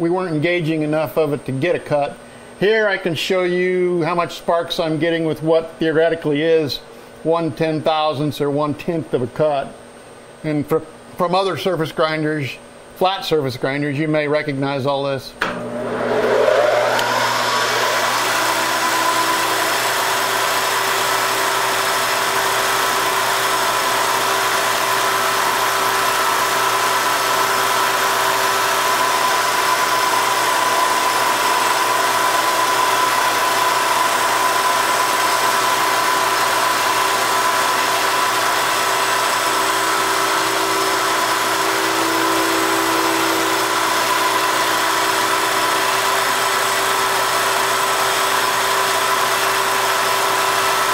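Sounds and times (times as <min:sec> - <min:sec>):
grinder whining: 0:15.4 - 0:50.9.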